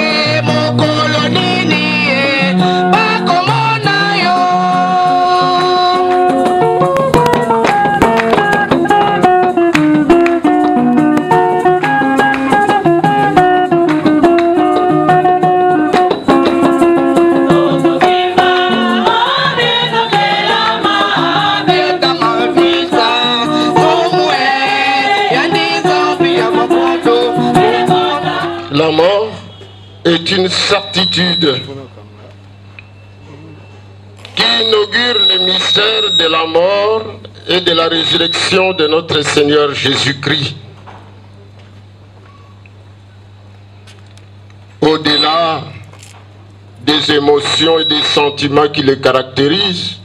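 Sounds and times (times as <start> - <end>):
drums: 6.0 - 18.2
choir singing: 17.4 - 28.7.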